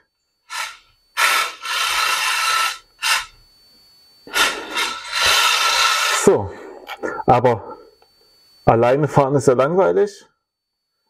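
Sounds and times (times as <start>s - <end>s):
toy car tyres skidding hiss: 0.5s - 3.3s, 4.3s - 6.2s.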